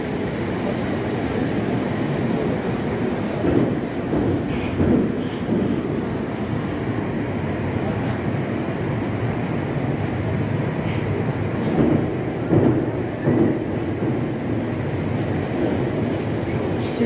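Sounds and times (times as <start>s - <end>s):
subway train rumbling in tunnel: 0.0s - 17.0s.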